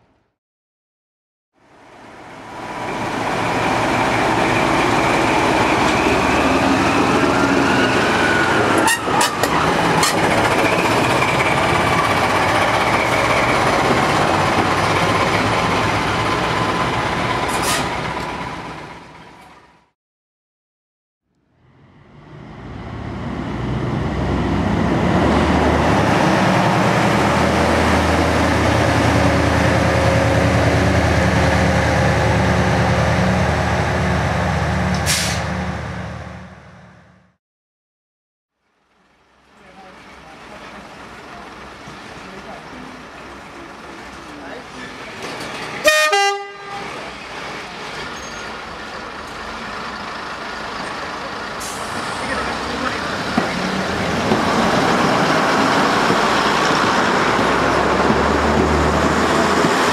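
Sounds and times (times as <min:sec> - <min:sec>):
diesel locomotive engine running: 0:01.8 - 0:19.9, 0:21.7 - 0:37.4, 0:39.0 - 0:59.9
diesel engines running: 0:39.4 - 0:59.9
train horn: 0:45.8 - 0:47.0.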